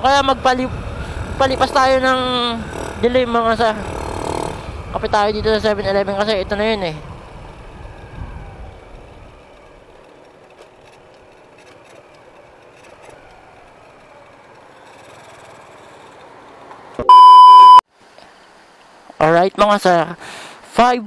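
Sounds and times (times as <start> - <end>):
motorcycle rolling at low revs: 0.0 - 17.0
electronic beep: 17.0 - 17.8.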